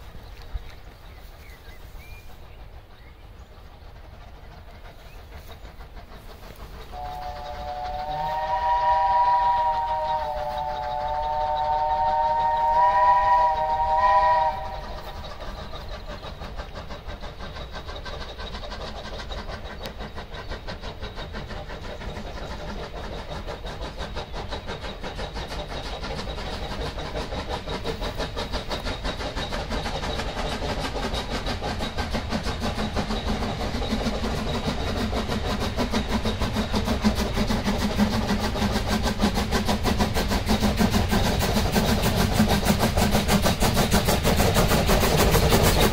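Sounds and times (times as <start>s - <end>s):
steam locomotive running: 0.0s - 45.9s
steam locomotive whistle: 6.3s - 15.2s.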